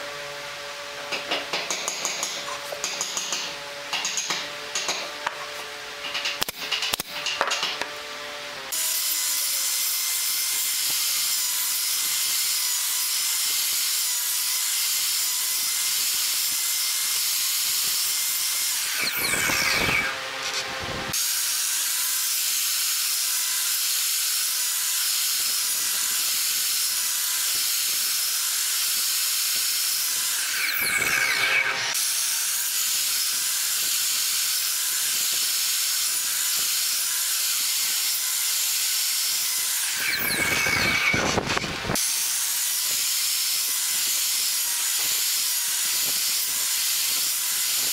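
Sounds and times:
saw blade cutting wood: 1.0s - 47.9s
miter saw whining: 18.7s - 21.5s, 39.3s - 43.1s.

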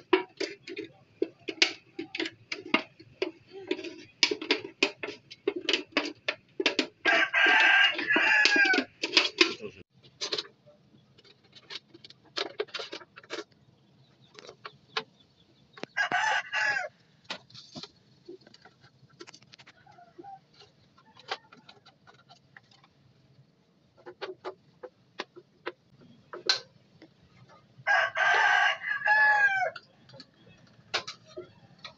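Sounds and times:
rooster crowing: 7.0s - 8.9s, 16.0s - 16.9s, 27.8s - 29.9s.

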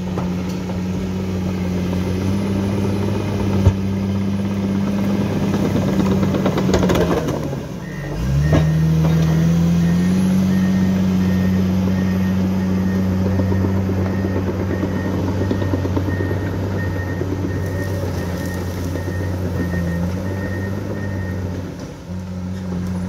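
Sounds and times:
bulldozer diesel engine revving: 0.0s - 23.0s
reverse alarm beeping: 7.8s - 21.4s.

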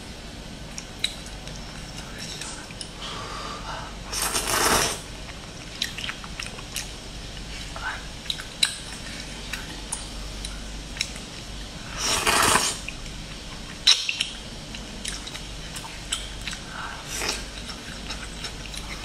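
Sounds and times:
eating noise: 4.1s - 9.9s, 11.9s - 13.0s.

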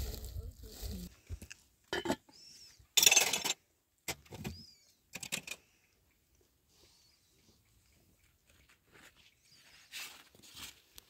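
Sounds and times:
metal pot lid clanking and scraping: 1.9s - 2.3s, 3.0s - 3.6s.

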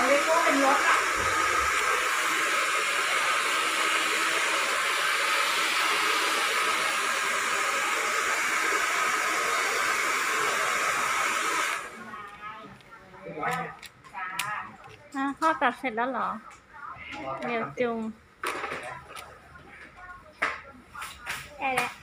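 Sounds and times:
small appliance motor whooshing: 0.0s - 12.0s.

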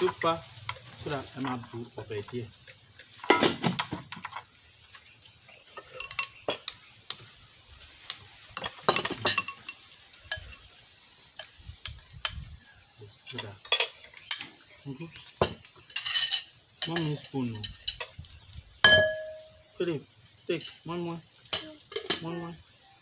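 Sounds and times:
spoons clinking on plates: 5.7s - 7.4s, 8.0s - 10.7s, 13.3s - 14.7s, 15.3s - 18.2s, 18.8s - 19.6s, 21.5s - 22.5s.

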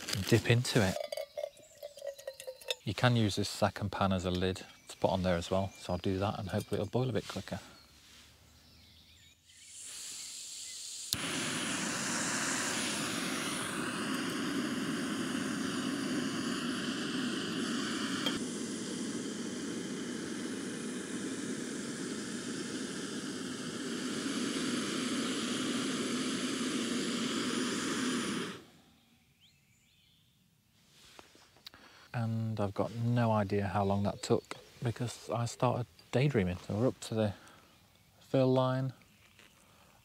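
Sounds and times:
gas hissing: 0.0s - 3.6s, 9.6s - 28.8s
stove burner roaring: 11.1s - 28.6s.

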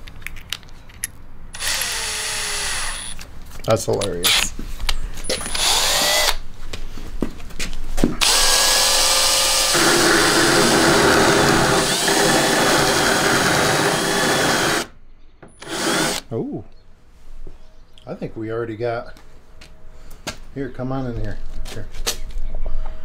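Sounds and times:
power drill spinning disc on bolt: 1.6s - 3.2s, 5.3s - 6.4s, 8.2s - 14.9s, 15.6s - 16.2s.

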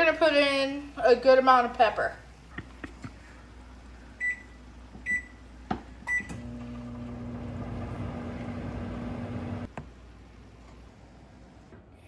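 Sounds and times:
microwave humming: 4.1s - 12.0s
microwave keypad beeps: 4.2s - 4.5s, 5.1s - 5.4s, 6.1s - 6.4s
microwave stopping click: 6.1s - 9.7s.

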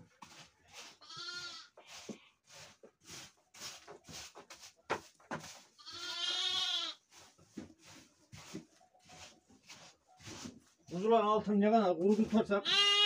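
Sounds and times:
litter being swept: 0.0s - 13.0s
sheep bleating: 1.0s - 1.7s, 5.8s - 7.0s, 12.6s - 13.0s.

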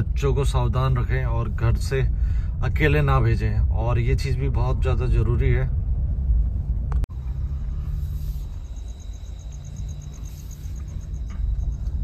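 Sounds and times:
car cabin rumble: 0.0s - 12.0s
insects chirping: 7.1s - 12.0s.

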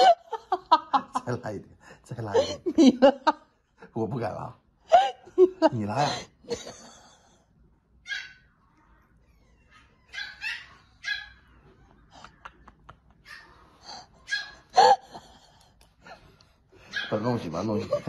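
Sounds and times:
dog whimpering and yipping: 8.1s - 11.9s, 13.3s - 15.0s.

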